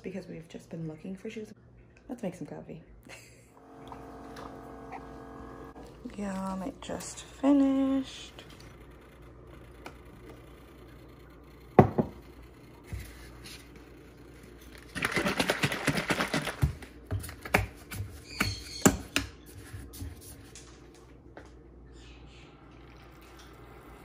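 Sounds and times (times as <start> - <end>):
mug knocking on countertop: 11.8 - 12.2
plastic bottle rattling: 14.8 - 16.8.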